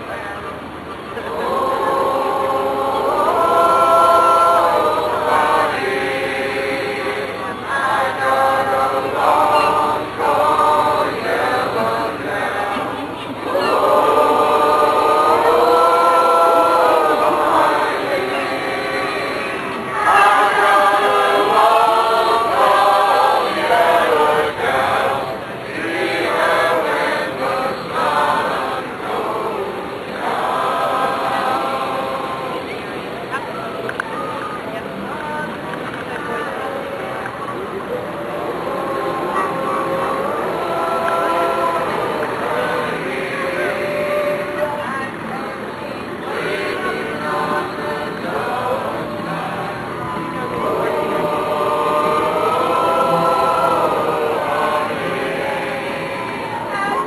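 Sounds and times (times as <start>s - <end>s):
group of voices singing: 0.0s - 57.0s.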